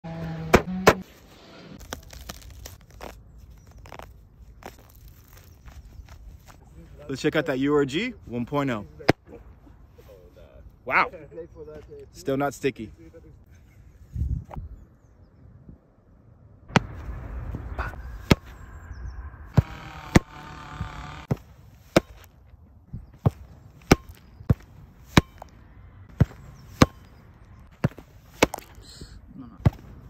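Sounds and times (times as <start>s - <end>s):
football being kicked: 18.2s - 18.5s
ball smacking into gloves: 27.8s - 28.8s.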